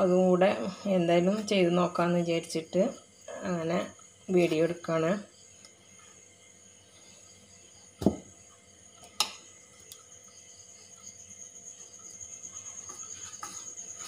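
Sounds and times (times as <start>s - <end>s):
hands mixing dough in steel bowl: 12.4s - 14.0s.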